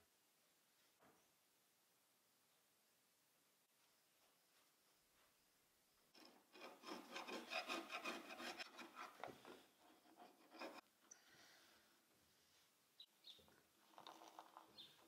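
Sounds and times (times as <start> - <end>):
hand scraper on fiberglass: 6.2 - 10.8.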